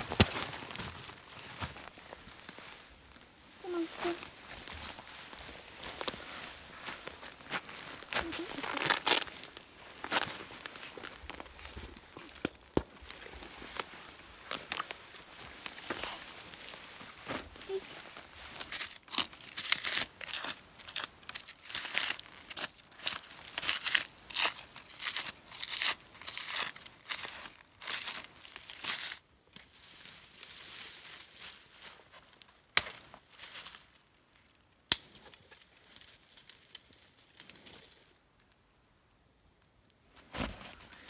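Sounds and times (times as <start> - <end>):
rustling twigs: 0.0 - 38.2
dry twigs snapping and tearing: 18.7 - 29.8, 34.4 - 37.6.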